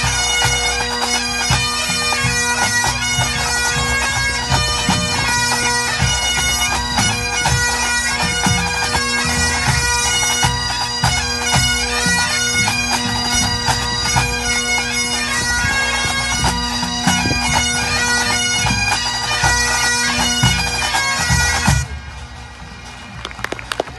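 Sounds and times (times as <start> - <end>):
bagpipes playing over drones: 0.0 - 23.9
pipe band drums beating: 0.0 - 23.9.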